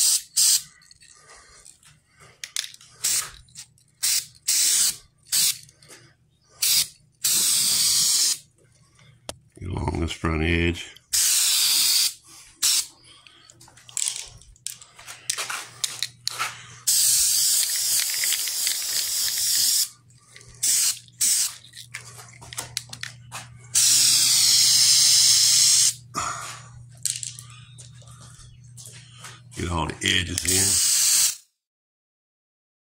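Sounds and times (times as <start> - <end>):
aerosol can spraying: 0.0 - 0.7, 4.0 - 5.6, 6.6 - 8.4, 11.2 - 12.9, 16.9 - 20.0, 20.6 - 21.6, 23.8 - 26.0, 30.5 - 31.5
steady low hum: 0.1 - 30.8.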